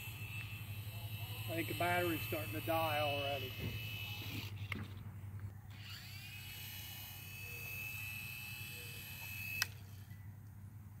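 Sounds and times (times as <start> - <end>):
motor cutting off click: 0.0 - 0.6, 5.7 - 10.0
toy helicopter motor whining: 0.0 - 5.0, 5.7 - 10.2.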